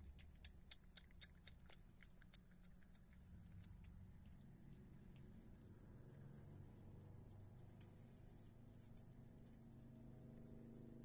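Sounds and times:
animal chewing with smacking clicks: 0:00.0 - 0:11.0
low steady hum: 0:00.0 - 0:11.0.

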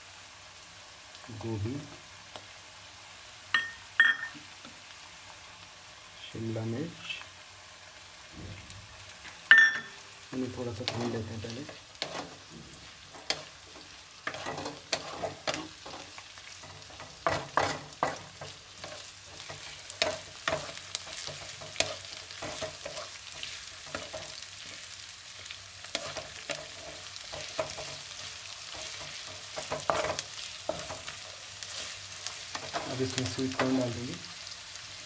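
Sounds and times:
vegetables sizzling in hot oil: 0:00.0 - 0:35.0
spoon scraping and knocking pan: 0:03.6 - 0:04.5, 0:09.5 - 0:10.0, 0:10.8 - 0:24.8, 0:25.9 - 0:33.8.

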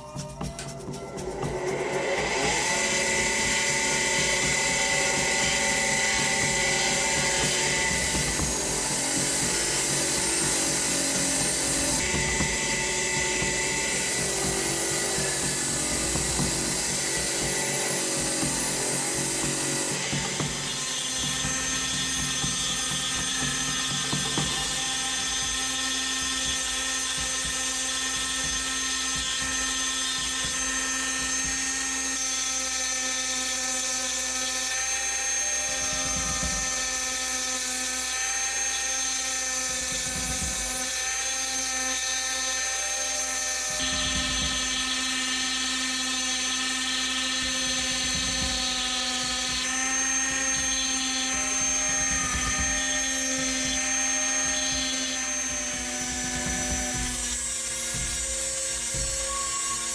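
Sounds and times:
rotary tool grinding steel: 0:01.0 - 0:59.9
bench wheel grinding steel: 0:01.3 - 0:32.2.

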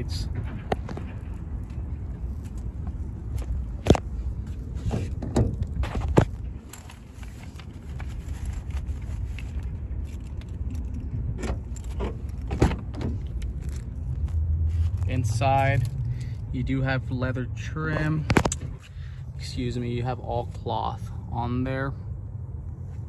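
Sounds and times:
low steady rumble: 0:00.0 - 0:23.0
car door rattling: 0:11.3 - 0:13.8.

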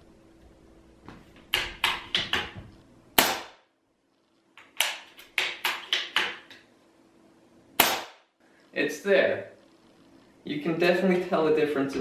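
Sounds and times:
air rifle shot: 0:03.2 - 0:03.6, 0:07.8 - 0:08.3.

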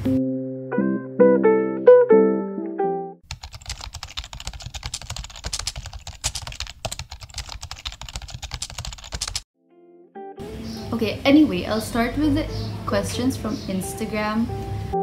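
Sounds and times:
plucked guitar music: 0:00.0 - 0:03.2, 0:09.6 - 0:15.0
computer keyboard typing: 0:03.2 - 0:09.4.

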